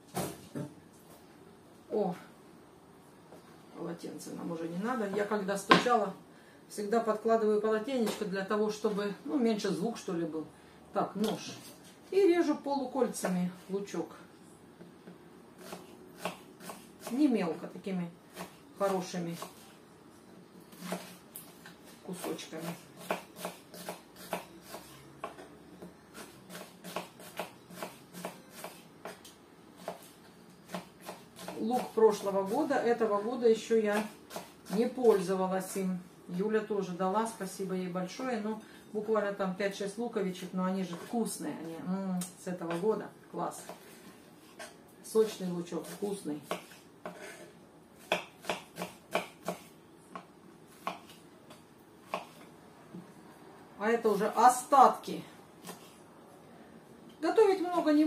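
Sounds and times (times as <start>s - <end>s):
knife slicing onion on board: 15.6s - 17.3s, 20.8s - 21.2s, 22.1s - 25.4s, 26.1s - 32.7s, 45.8s - 52.5s, 55.6s - 56.0s.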